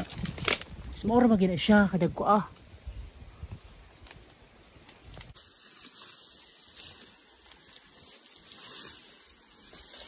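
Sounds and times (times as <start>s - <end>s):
sickle cutting undergrowth: 0.0s - 1.4s, 3.7s - 10.0s
steady high hiss: 0.7s - 10.0s.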